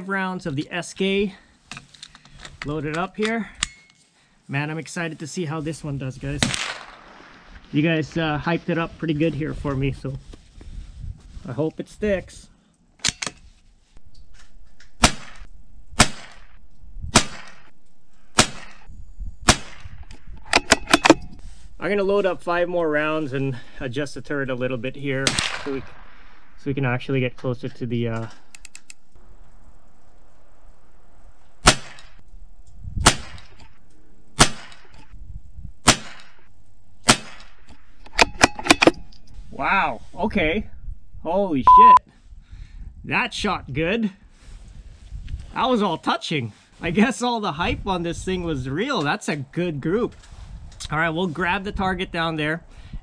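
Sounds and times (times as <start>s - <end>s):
rifle shots cracking: 6.4s - 7.2s, 14.4s - 21.3s, 25.0s - 26.6s, 30.8s - 35.0s, 35.8s - 39.0s.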